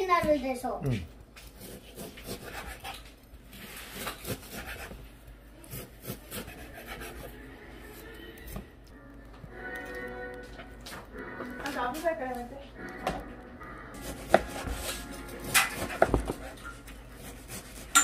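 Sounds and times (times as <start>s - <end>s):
knife cutting through meat: 1.4s - 5.0s, 5.6s - 7.3s, 14.0s - 18.0s.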